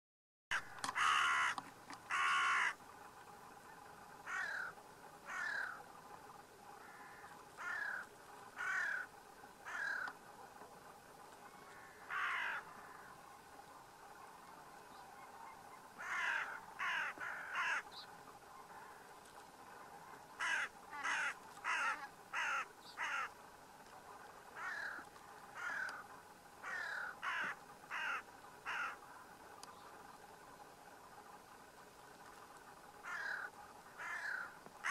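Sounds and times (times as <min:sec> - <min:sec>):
crow cawing: 0:00.5 - 0:02.8, 0:04.2 - 0:05.8, 0:06.8 - 0:10.2, 0:11.6 - 0:13.2, 0:16.0 - 0:17.9, 0:18.7 - 0:19.1, 0:20.4 - 0:23.4, 0:24.6 - 0:29.0, 0:33.0 - 0:34.9.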